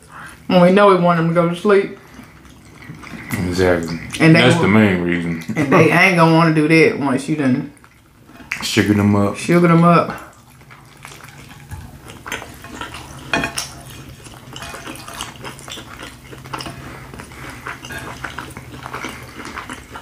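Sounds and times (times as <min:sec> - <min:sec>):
chewing smacks: 0:01.9 - 0:04.4, 0:07.7 - 0:09.0, 0:10.1 - 0:20.0.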